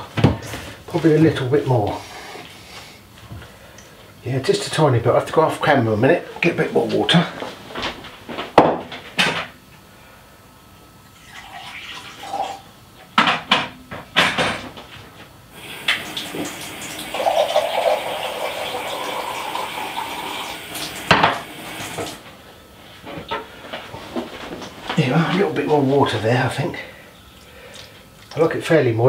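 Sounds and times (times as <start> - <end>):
tap running water into jug: 15.6 - 22.2.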